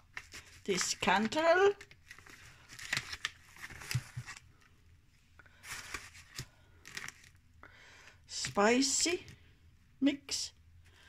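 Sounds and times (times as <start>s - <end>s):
plastic packets crinkling: 0.0s - 4.6s, 5.5s - 7.4s.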